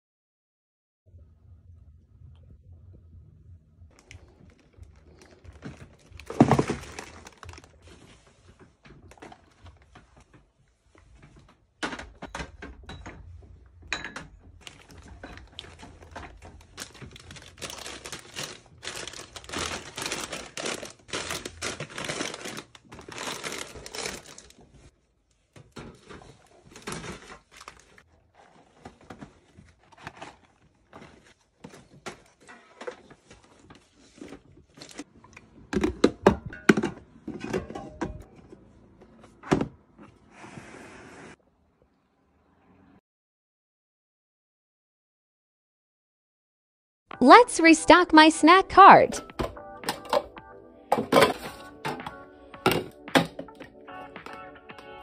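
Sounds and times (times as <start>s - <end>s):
plastic wrappers crinkling: 3.9s - 8.4s, 14.6s - 24.9s, 26.0s - 28.0s.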